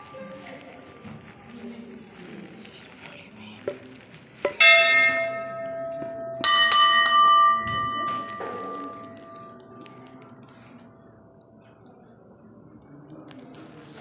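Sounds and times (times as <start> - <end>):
higher-pitched bell struck: 4.5 - 9.8
low temple bell ringing: 4.5 - 11.4.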